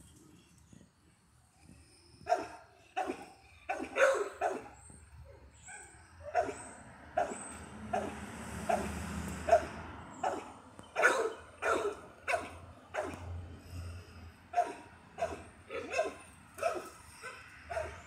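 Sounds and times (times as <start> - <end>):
dog barking: 2.3 - 4.8, 5.6 - 13.3, 14.5 - 18.0.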